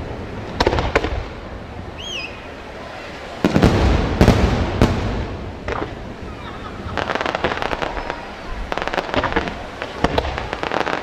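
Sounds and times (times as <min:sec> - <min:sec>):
firework crackle: 0:00.0 - 0:02.4, 0:03.0 - 0:11.0.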